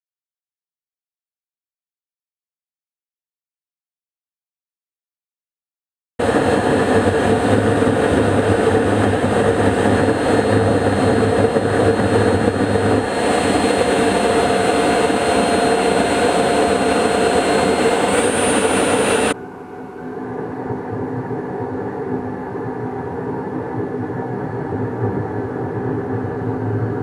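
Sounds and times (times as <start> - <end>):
pulse jet roaring: 6.2 - 27.0.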